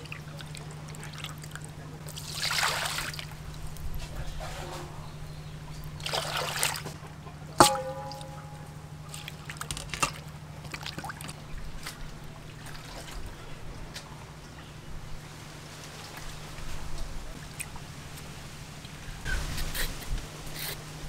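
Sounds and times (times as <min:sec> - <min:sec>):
water splashing in metal bowl: 0:02.1 - 0:03.6, 0:06.0 - 0:06.9, 0:07.6 - 0:13.3
knock on metal bowl: 0:07.6 - 0:09.0.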